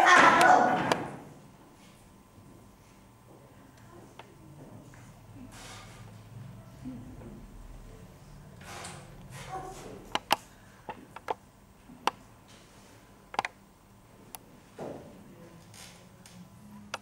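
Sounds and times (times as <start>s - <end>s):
sharp clicks and knocks: 10.1s - 11.4s, 13.3s - 13.6s.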